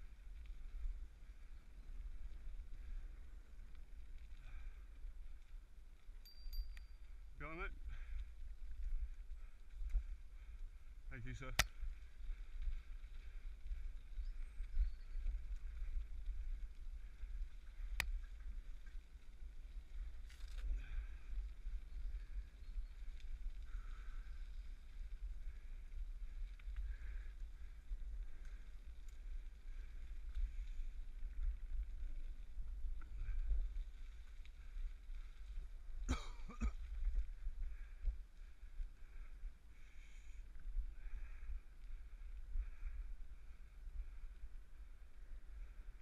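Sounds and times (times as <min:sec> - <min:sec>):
wind rumbling on microphone: 0:00.0 - 0:46.0
bicycle tyres hissing: 0:07.9 - 0:36.0.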